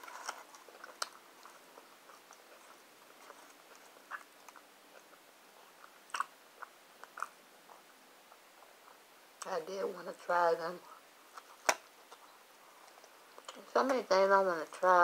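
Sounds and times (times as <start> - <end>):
chewing soft food: 0.1 - 9.5.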